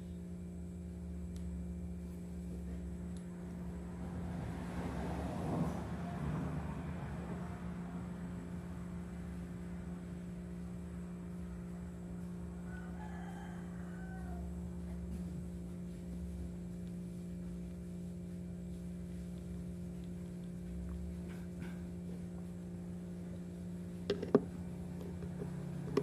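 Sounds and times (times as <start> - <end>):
low electrical hum: 0.0 - 26.0
distant rooster crow: 11.6 - 15.2.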